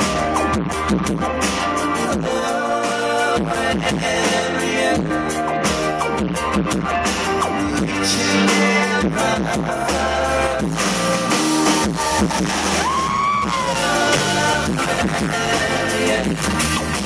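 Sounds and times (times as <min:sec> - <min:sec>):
live rock band playing: 0:00.0 - 0:17.0
person singing: 0:01.7 - 0:05.8, 0:07.6 - 0:17.0.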